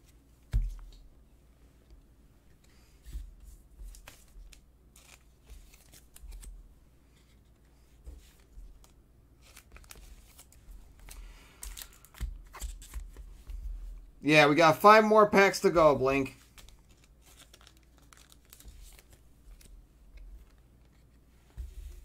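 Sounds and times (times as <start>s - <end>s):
foil pack rustling: 16.5s - 19.7s.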